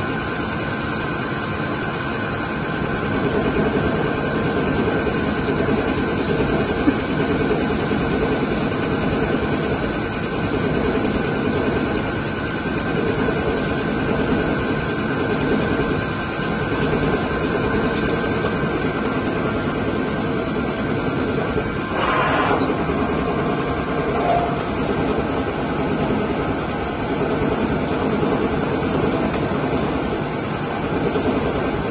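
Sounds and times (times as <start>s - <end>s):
coolant spraying: 2.5s - 31.9s
lathe cutting metal bar: 21.6s - 26.2s.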